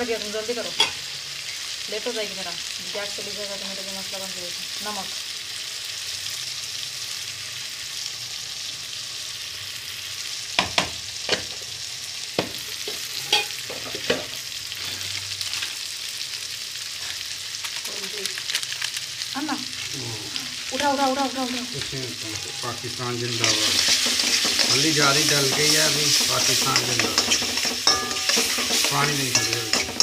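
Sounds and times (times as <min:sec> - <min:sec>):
vegetables sizzling in hot oil: 0:00.0 - 0:30.0
steel spoon clinking on pan: 0:13.2 - 0:13.6, 0:22.3 - 0:30.0.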